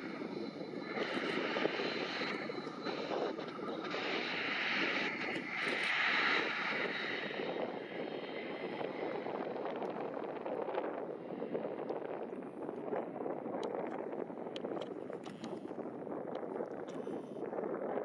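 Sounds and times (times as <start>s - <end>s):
jet engine hiss: 0.0s - 11.8s.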